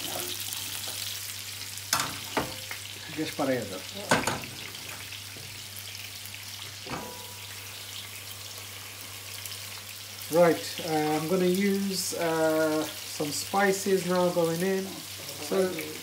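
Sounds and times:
fish sizzling in hot oil: 0.0s - 16.0s
pans clunking on hob grates: 4.1s - 5.0s, 6.8s - 7.4s.

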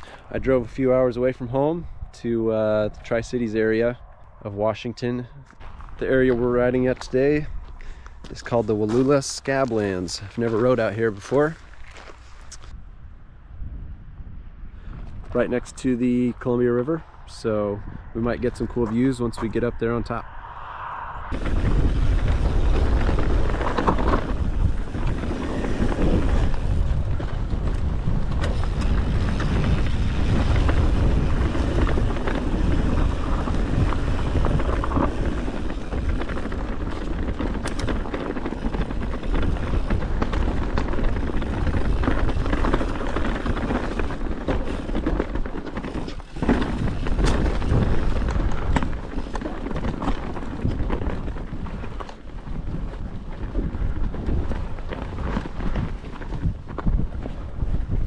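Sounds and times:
wind on microphone: 0.0s - 11.8s, 12.4s - 58.0s
bike tyres on dirt: 0.0s - 13.4s, 14.1s - 58.0s
bike clicks and rattles: 21.3s - 58.0s.

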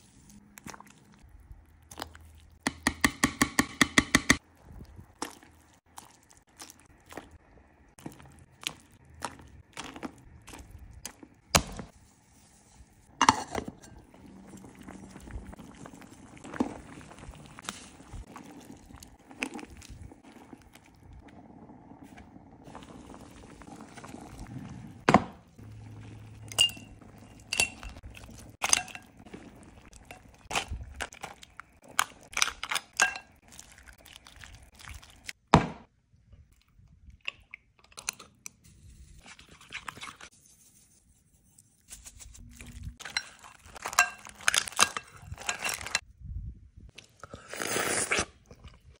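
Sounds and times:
dishes clinking and scraping: 13.1s - 14.9s, 26.0s - 31.3s, 32.0s - 33.4s, 43.0s - 46.0s.

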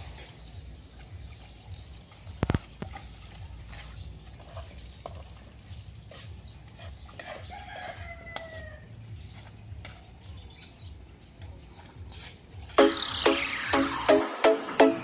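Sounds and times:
rooster crowing: 7.2s - 8.9s.

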